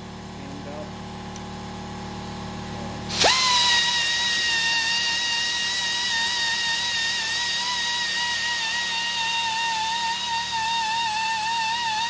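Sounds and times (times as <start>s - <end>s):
air belt sander whining: 3.0s - 12.0s.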